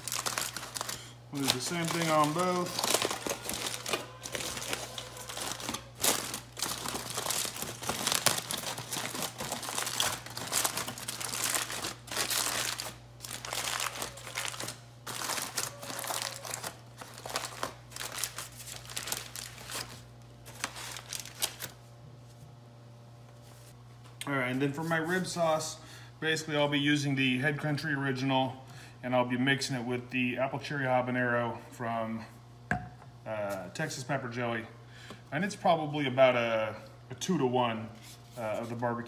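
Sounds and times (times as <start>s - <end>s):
aluminium foil crinkling: 0.0s - 21.8s.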